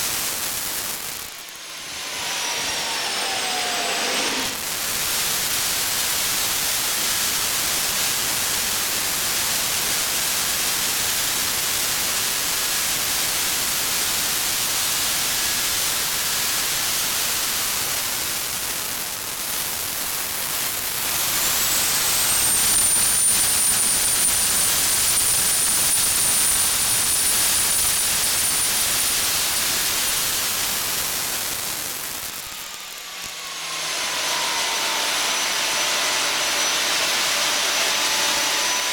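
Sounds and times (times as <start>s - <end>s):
jet engine roar: 0.0s - 7.3s, 15.3s - 38.9s
high turbine whine: 0.0s - 9.6s, 13.0s - 38.9s.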